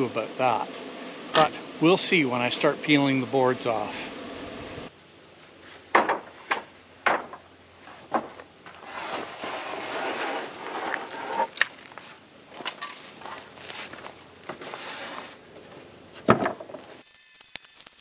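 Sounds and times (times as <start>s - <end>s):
wooden boards knocking: 5.9s - 7.4s
wood scraping and rubbing: 7.2s - 12.1s, 13.2s - 15.4s.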